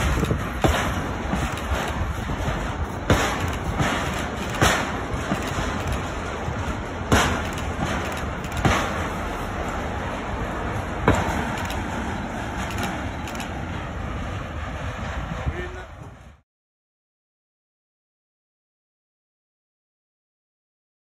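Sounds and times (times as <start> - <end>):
freight train rolling rumble: 0.0 - 16.4
wheels clacking over rail joints: 0.0 - 16.4.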